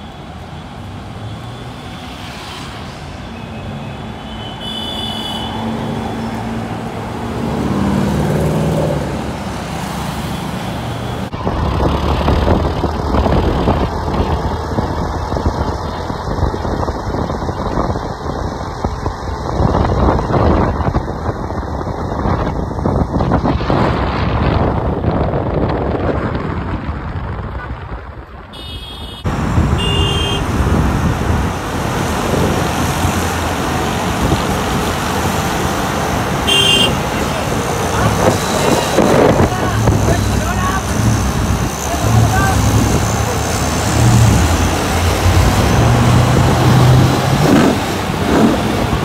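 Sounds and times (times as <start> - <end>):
city road traffic: 0.0 - 49.0
wind noise: 11.0 - 49.0
car driving close by: 29.3 - 49.0.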